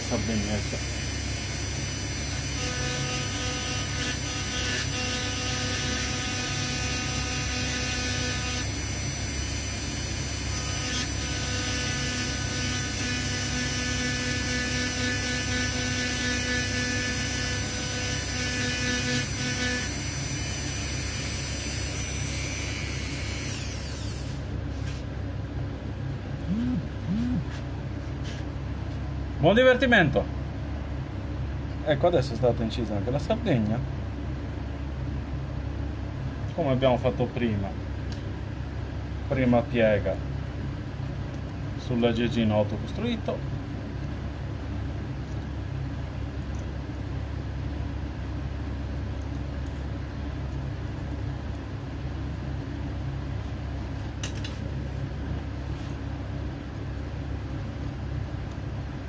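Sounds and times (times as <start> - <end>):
rotary tool high whine: 0.0 - 24.6, 26.4 - 27.6.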